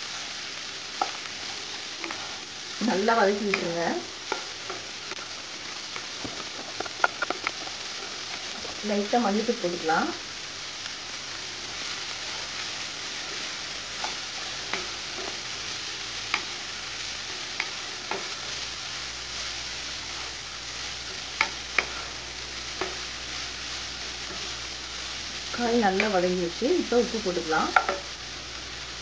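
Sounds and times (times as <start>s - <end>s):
vegetables sizzling in oil: 0.0s - 29.0s
spatula knocking against pan: 27.8s - 28.0s.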